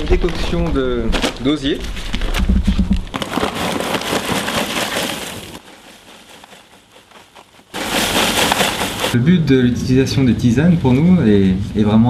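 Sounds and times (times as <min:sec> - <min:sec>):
dried twigs rustling: 0:03.1 - 0:09.2
paper bag crinkling: 0:03.1 - 0:09.2.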